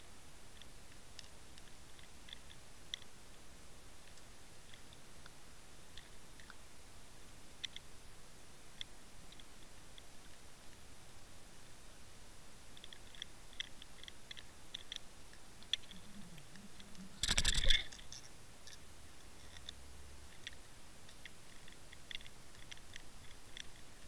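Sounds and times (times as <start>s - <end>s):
faint underwater clicks: 12.7s - 24.0s.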